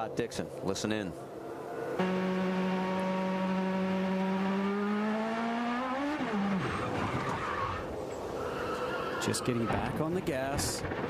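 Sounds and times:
race car engine: 1.4 - 8.0.

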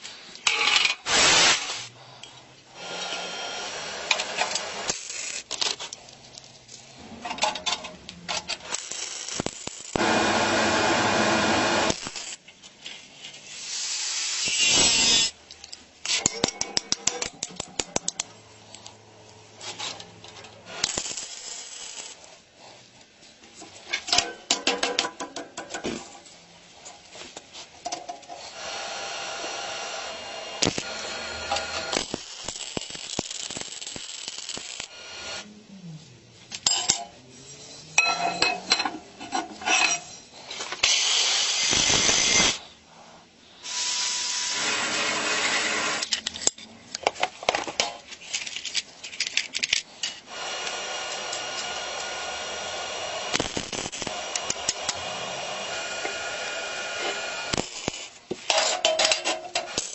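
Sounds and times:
steel parts clinking: 14.5 - 18.9, 36.5 - 40.8, 46.0 - 50.2, 57.6 - 59.9.

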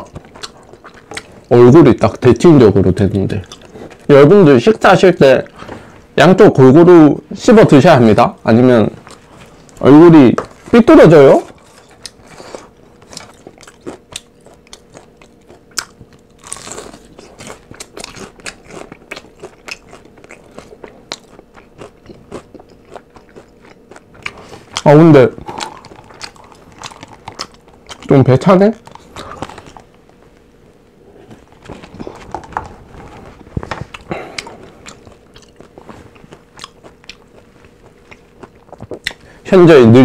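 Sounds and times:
crunchy chewing: 0.0 - 2.4, 3.2 - 4.1, 11.4 - 30.4, 31.2 - 39.4.

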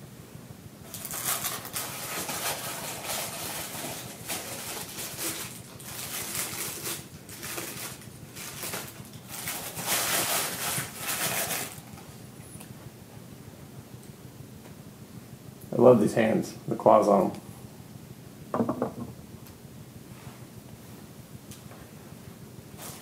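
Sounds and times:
packing material rustling: 0.8 - 12.1.

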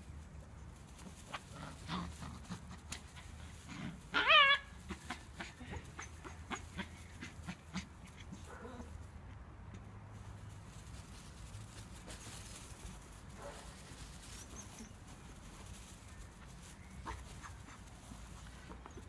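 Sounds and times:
puppy yelping: 4.1 - 7.8.

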